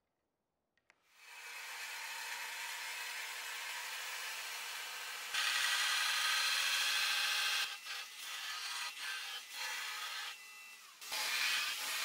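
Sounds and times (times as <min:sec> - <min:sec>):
belt grinder grinding steel: 0:05.3 - 0:06.9, 0:07.5 - 0:12.0.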